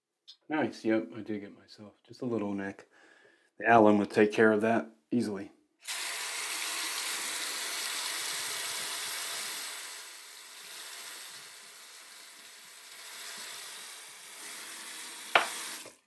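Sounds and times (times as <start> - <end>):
tap water running into sink: 5.9 - 16.0.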